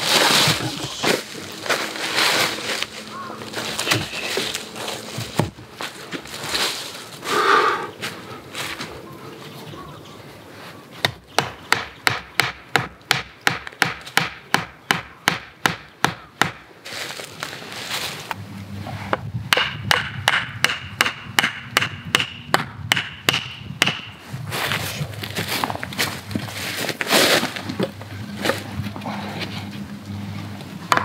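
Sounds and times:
hatchet pounding wooden stake: 3.8s - 4.3s, 5.2s - 5.6s, 11.0s - 16.7s, 19.5s - 24.2s.

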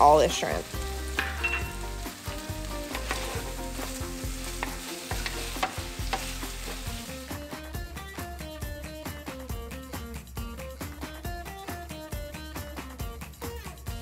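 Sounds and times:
light steady sizzle: 0.0s - 8.6s
spatula scraping and tapping pan: 1.1s - 1.9s, 2.8s - 6.8s.

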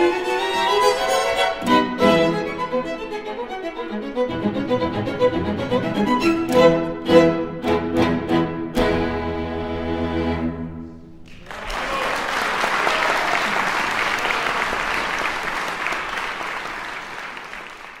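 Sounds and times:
string quartet chord: 0.0s - 11.1s
audience applause: 11.2s - 18.0s.

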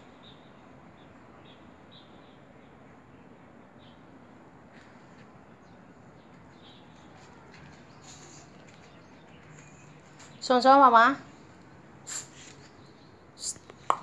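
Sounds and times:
faint outdoor ambience: 0.0s - 14.0s.

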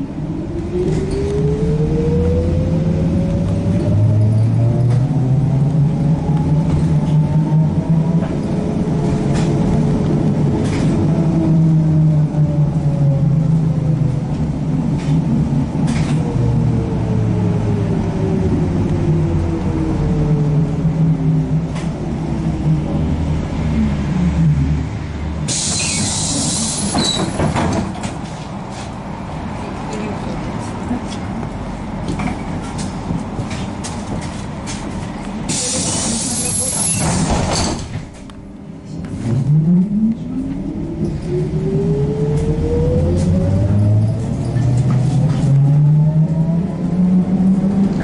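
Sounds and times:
trolleybus electric drive whine: 0.0s - 48.0s
compressed air hissing: 25.5s - 27.0s.

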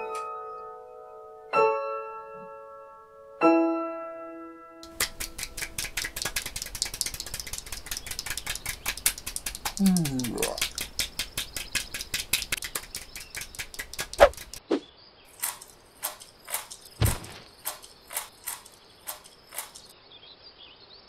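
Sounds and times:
fast sharp clicks: 4.8s - 14.6s, 15.4s - 19.9s
low thump: 17.0s - 17.5s.

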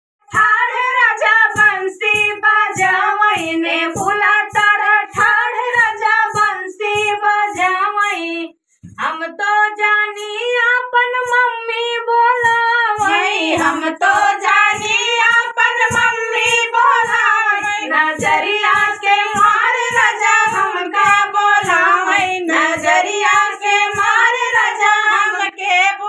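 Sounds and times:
steady drum beat: 0.3s - 7.2s, 12.4s - 25.4s
woman singing: 0.3s - 26.0s.

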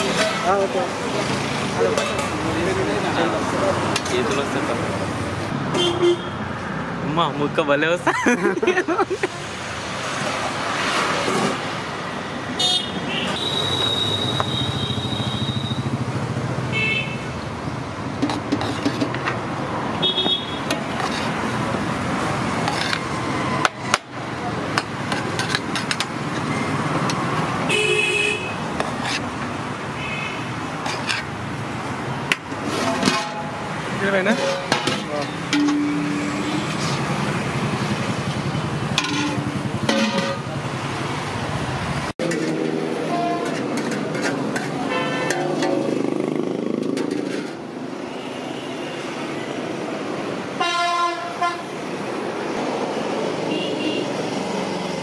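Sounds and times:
road traffic: 0.0s - 55.0s
vehicle horns tooting: 5.7s - 6.4s, 12.6s - 15.9s, 16.7s - 17.3s, 20.0s - 20.7s, 27.7s - 28.6s, 44.8s - 45.6s, 50.6s - 51.7s.

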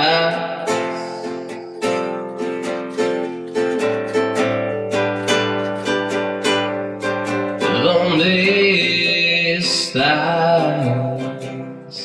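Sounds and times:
man singing: 0.0s - 2.2s, 7.6s - 12.0s
acoustic guitar strumming: 0.0s - 12.0s.

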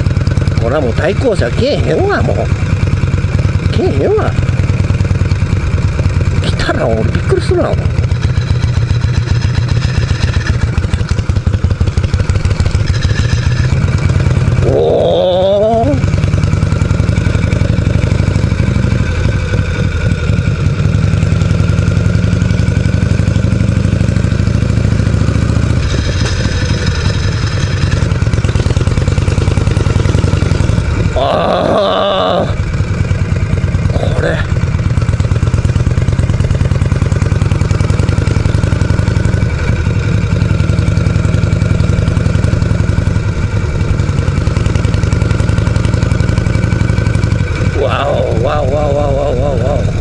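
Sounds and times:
motorcycle engine running: 0.0s - 50.0s.

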